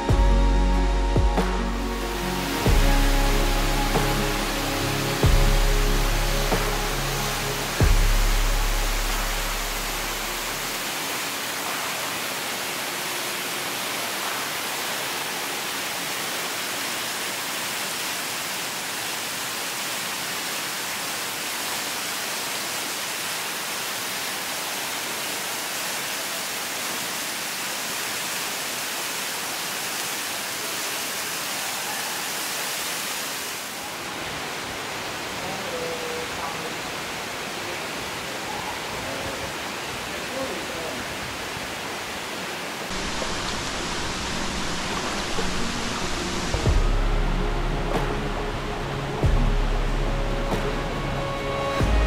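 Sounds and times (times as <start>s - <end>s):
waterfall rushing onto rocks: 1.6s - 52.0s.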